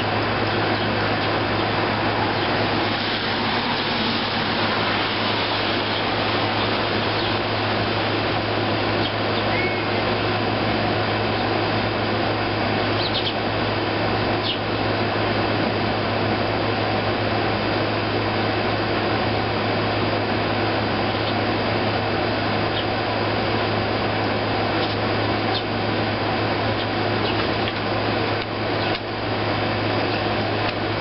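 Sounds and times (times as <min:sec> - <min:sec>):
air conditioner whirring: 0:00.0 - 0:31.0
sparrow chirps: 0:02.3 - 0:02.6, 0:05.9 - 0:07.4, 0:09.0 - 0:10.0, 0:13.0 - 0:13.4, 0:14.4 - 0:14.6, 0:24.8 - 0:25.7, 0:26.8 - 0:27.5.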